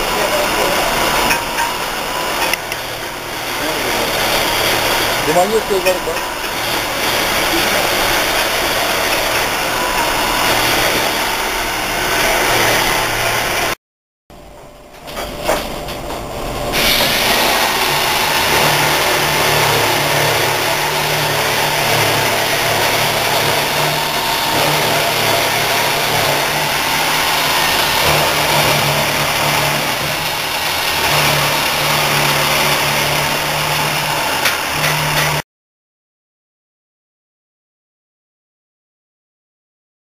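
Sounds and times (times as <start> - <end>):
low motor hum: 0.0 - 13.8
milling machine cutting metal: 0.0 - 13.8, 14.9 - 35.4.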